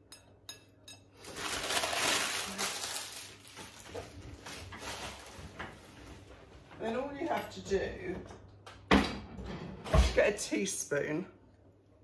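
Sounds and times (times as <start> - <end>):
plastic sheet rustling: 1.2 - 6.3.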